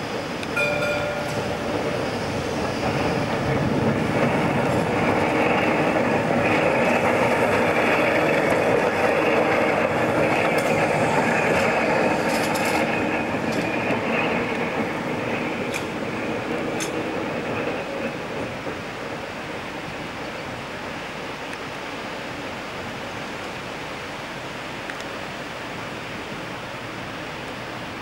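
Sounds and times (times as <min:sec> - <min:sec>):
electric tram running past: 0:00.0 - 0:21.2
brief ringing tone: 0:00.6 - 0:02.3.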